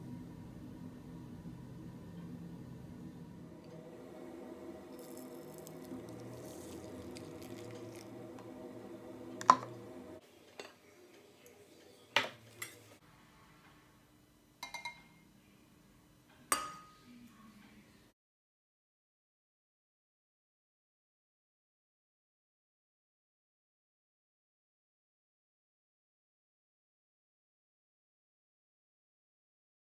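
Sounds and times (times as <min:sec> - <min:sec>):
steady hum: 0:00.0 - 0:10.2
ladle clinking against bowls: 0:16.5 - 0:17.0.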